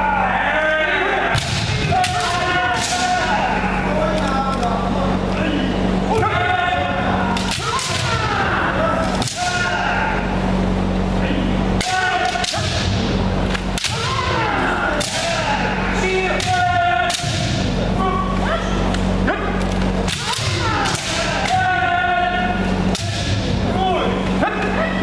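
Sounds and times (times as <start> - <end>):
fencers shouting: 0.0 - 25.0
steady low hum: 0.0 - 25.0
bamboo swords cracking: 1.3 - 3.3, 7.3 - 8.4, 9.0 - 9.7, 11.8 - 17.6, 19.6 - 21.8, 22.8 - 23.4.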